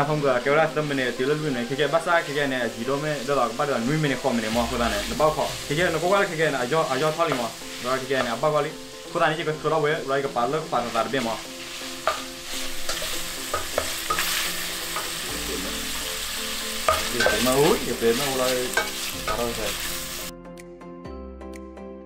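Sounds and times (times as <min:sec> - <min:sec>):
meat sizzling in a pan: 0:00.0 - 0:20.3
spatula scraping a metal pan: 0:11.6 - 0:16.0, 0:16.9 - 0:19.9.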